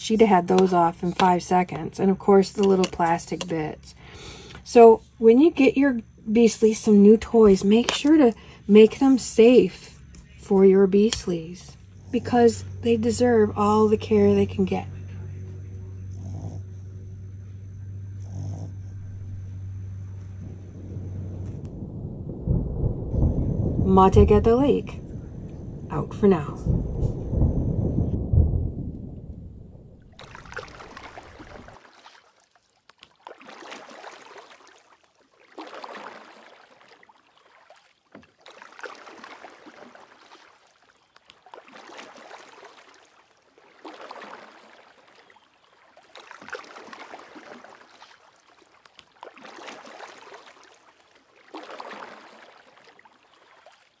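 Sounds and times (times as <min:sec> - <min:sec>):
small waves washing onto shore: 0:30.0 - 0:54.0.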